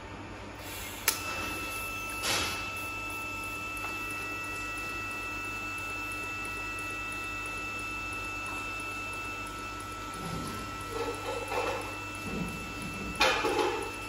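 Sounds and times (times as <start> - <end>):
welding arc hiss: 0.6 - 5.2.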